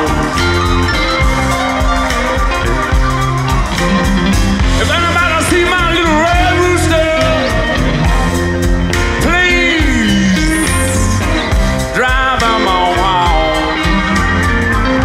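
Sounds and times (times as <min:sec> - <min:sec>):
man singing: 0:00.0 - 0:01.2, 0:04.7 - 0:15.0
rock band playing blues: 0:00.0 - 0:15.0.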